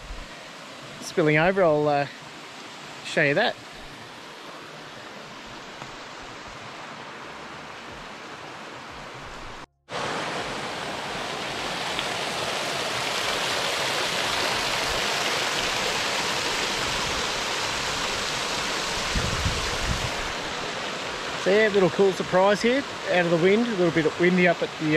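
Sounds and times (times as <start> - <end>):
water rushing over spillway: 0.3 - 24.9.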